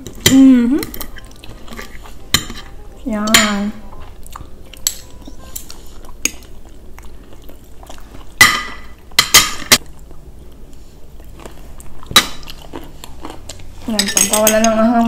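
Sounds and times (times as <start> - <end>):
cutlery clinking on ceramic plates: 0.0 - 3.7, 13.9 - 14.9.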